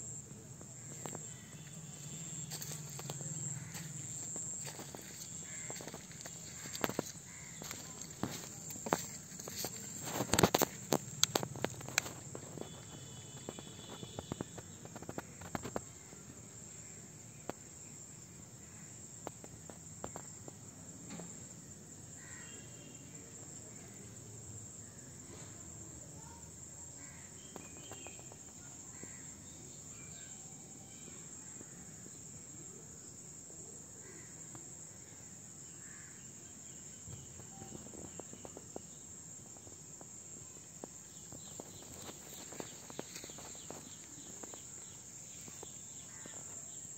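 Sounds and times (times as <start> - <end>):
crickets trilling: 0.0 - 46.9
sharp clicks and scuffs: 3.8 - 12.9
faint chirps: 22.4 - 33.2.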